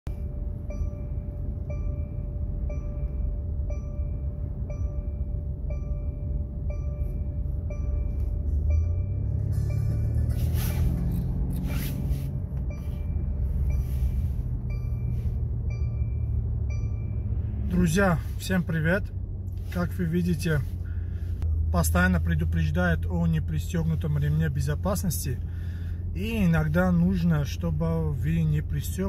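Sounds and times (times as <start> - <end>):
road and engine rumble: 0.0 - 29.0
seat belt warning chime: 0.1 - 19.0.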